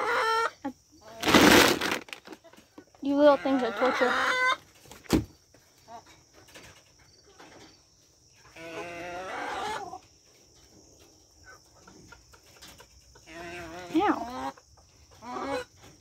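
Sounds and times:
drawn-out hen call: 0:00.0 - 0:01.4, 0:02.3 - 0:04.6, 0:08.5 - 0:10.0
hens clucking: 0:00.0 - 0:16.0.

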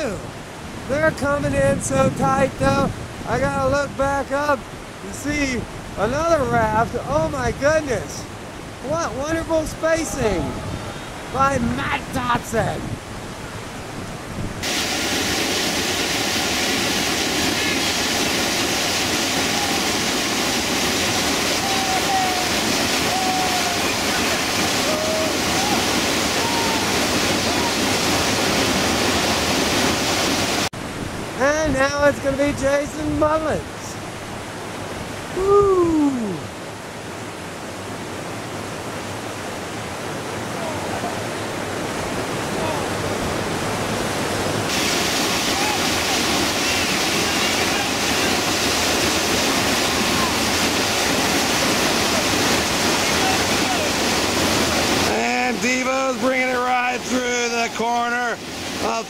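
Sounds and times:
whitewater rapids rushing: 0:00.0 - 0:59.0.

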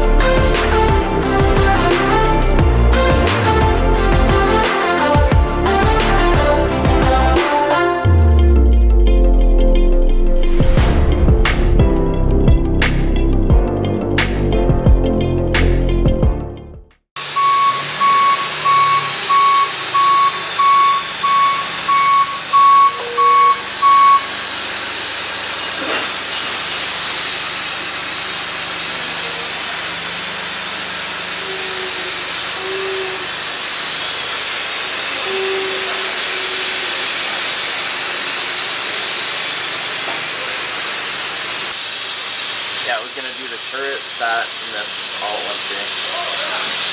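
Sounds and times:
electronic beeps: 0:17.3 - 0:24.3
loud steady hiss: 0:23.6 - 0:46.9.

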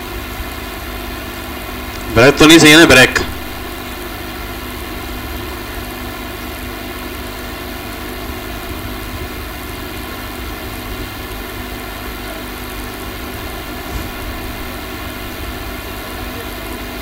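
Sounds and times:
electrical hum: 0:00.0 - 0:17.0
background hiss: 0:02.0 - 0:04.2.

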